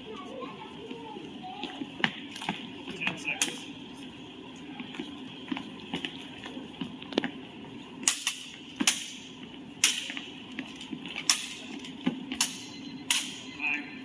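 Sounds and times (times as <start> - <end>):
swords clashing: 8.1 - 9.2, 9.8 - 10.2, 12.4 - 13.5.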